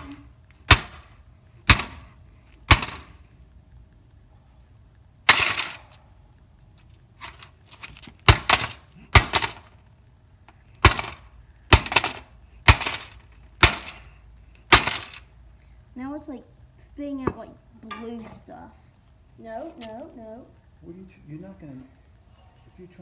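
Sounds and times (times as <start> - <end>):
plastic and metal casing cracking: 7.2 - 9.8, 10.8 - 14.0, 14.7 - 15.3.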